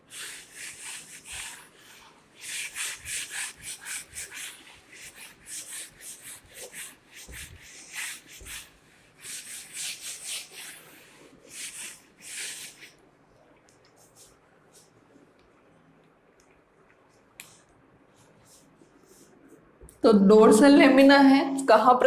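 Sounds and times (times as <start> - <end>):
duster rubbing on whiteboard: 0.0 - 13.0.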